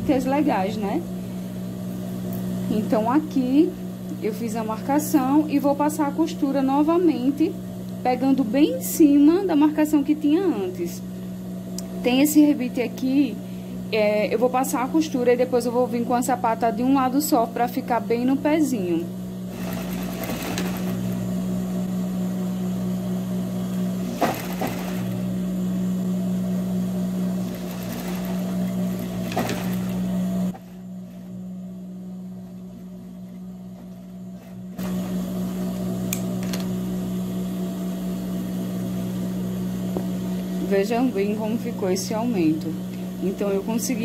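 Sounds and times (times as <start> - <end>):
sewing machine stitching: 19.5 - 21.2, 24.0 - 25.2, 27.3 - 30.8.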